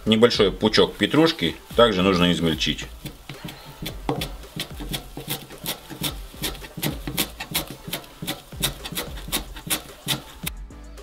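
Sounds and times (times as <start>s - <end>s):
knife chopping on cutting board: 2.9s - 10.5s.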